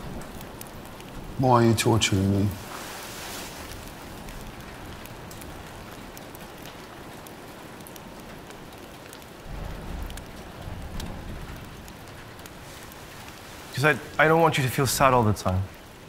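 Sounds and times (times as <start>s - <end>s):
sharp rain drops: 0.0s - 16.0s
steady rain: 0.0s - 16.0s.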